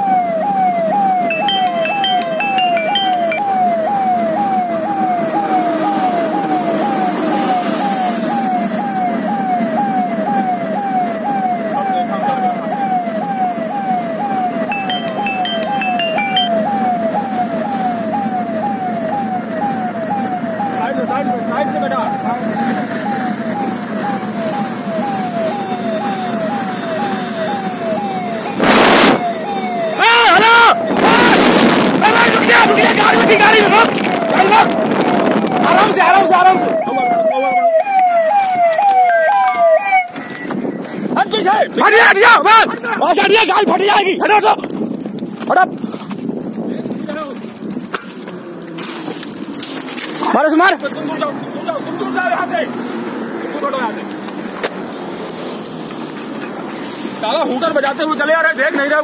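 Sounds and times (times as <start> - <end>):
electronic police siren: 0.0 - 40.9
vehicle road and engine noise: 0.0 - 59.0
falling electronic tone: 0.5 - 13.5, 14.2 - 20.8
loud rush of noise: 28.4 - 36.8.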